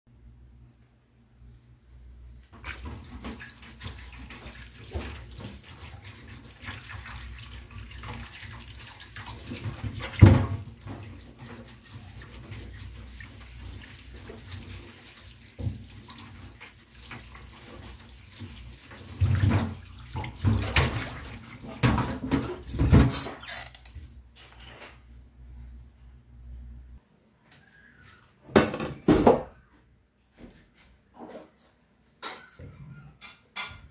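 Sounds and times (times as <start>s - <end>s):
water splashes: 2.6s - 23.3s
tap water running into metal sink: 2.6s - 24.2s.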